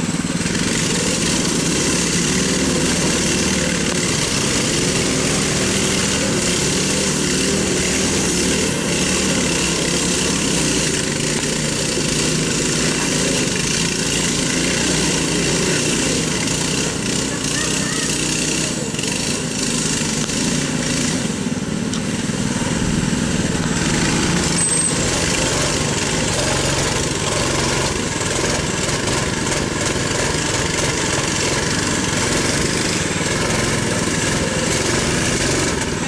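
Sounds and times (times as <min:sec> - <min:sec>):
mini bike engines running: 0:00.0 - 0:36.0.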